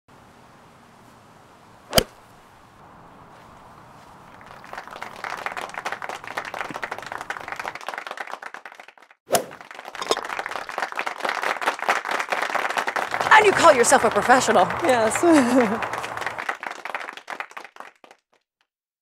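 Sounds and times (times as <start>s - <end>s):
golf club striking ball: 1.9s - 2.2s, 9.4s - 10.2s
applause: 4.3s - 18.7s.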